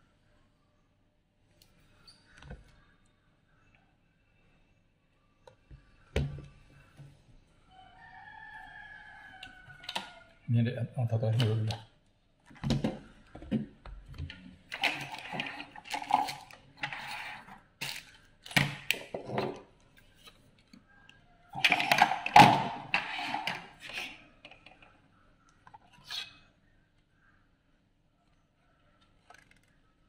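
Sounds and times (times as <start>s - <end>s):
plastic attachments on wooden table: 12.6s - 20.4s, 21.6s - 25.0s.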